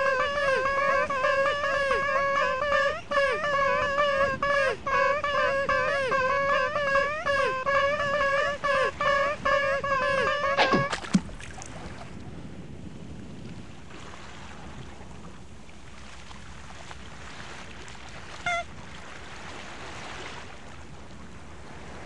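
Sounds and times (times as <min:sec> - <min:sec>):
squeaky call: 0:00.0 - 0:11.1, 0:18.4 - 0:18.7
lapping water: 0:00.0 - 0:12.1
short high squeak: 0:09.9 - 0:11.1.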